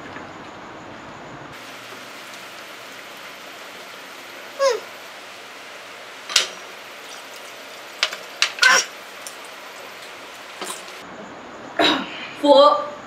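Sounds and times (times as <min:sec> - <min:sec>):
steady hiss: 0:01.5 - 0:11.1.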